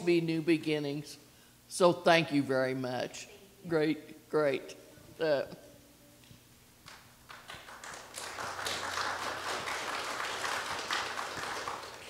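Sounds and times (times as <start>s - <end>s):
congregation applauding: 6.9s - 12.0s.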